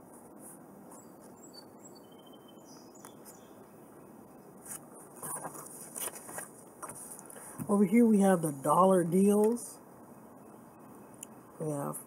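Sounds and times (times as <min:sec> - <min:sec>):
faint background noise: 0:00.0 - 0:12.0
faint high chirps: 0:00.9 - 0:04.4
paper rustling: 0:04.6 - 0:07.4.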